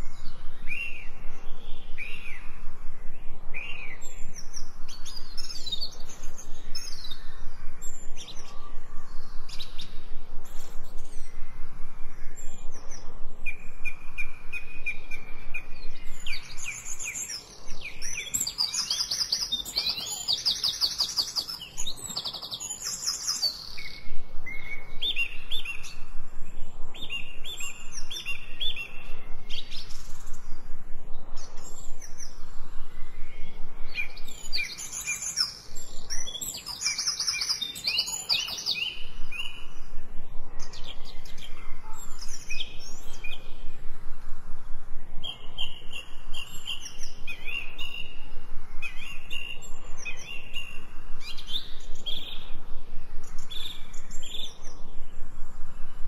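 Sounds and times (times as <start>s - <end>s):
songbirds singing and chirping: 0.0s - 56.0s.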